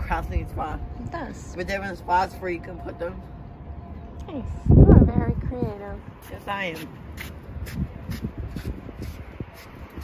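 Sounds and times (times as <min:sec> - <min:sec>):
wind rumble on microphone: 0:03.8 - 0:10.0.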